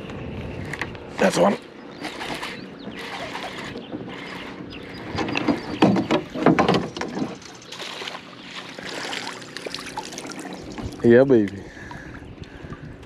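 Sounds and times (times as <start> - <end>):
fish splashing: 2.0 - 4.4, 7.0 - 11.0.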